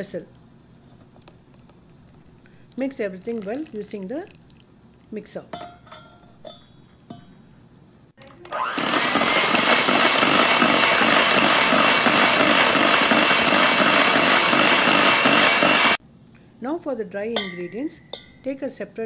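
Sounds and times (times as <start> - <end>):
beaters churning batter in bowl: 8.5 - 16.0
electric hand mixer whining: 8.5 - 16.0.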